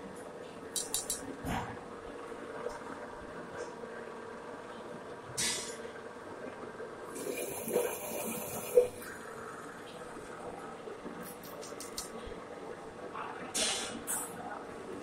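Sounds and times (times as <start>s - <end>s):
coolant hissing: 7.1s - 9.7s.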